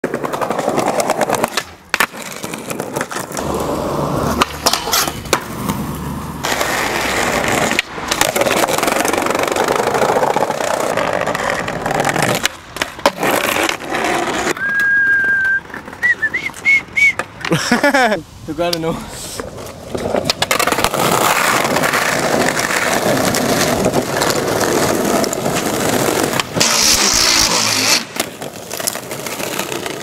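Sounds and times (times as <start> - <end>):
skateboard clacking: 0.0 - 17.8, 19.4 - 30.0
skateboard wheels rolling on pavement: 0.0 - 30.0
high whistle: 14.6 - 17.2.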